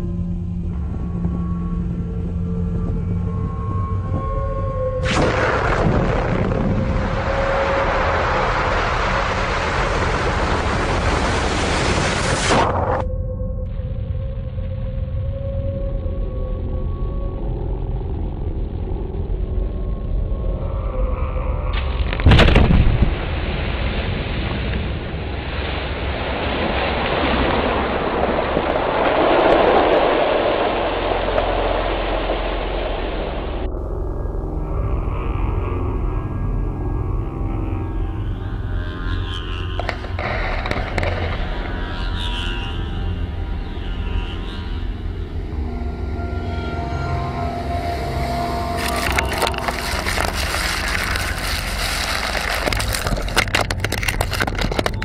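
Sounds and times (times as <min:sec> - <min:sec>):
churning water and falling spray: 0:05.0 - 0:13.0, 0:22.3 - 0:33.7, 0:48.3 - 0:54.9
wave crashing on rocky shore: 0:25.5 - 0:33.6, 0:48.6 - 0:53.7.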